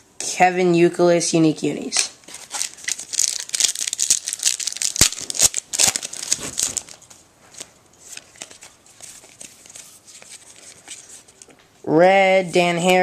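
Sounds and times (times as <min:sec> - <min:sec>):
foil wrapper crinkling and tearing: 0:02.3 - 0:07.1
cards being shuffled: 0:02.3 - 0:11.6.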